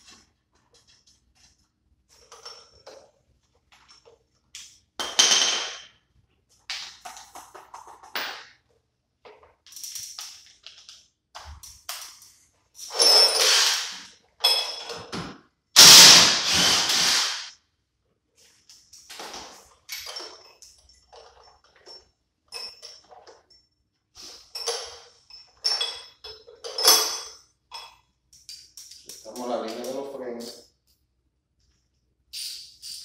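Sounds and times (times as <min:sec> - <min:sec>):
metal parts clanking: 0:12.8 - 0:15.1, 0:24.6 - 0:27.9.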